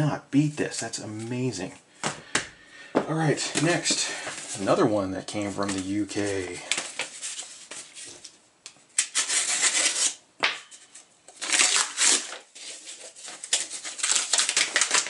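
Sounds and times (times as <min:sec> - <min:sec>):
paper envelope tearing and rustling: 0:05.4 - 0:08.3, 0:09.0 - 0:10.2, 0:10.9 - 0:15.0.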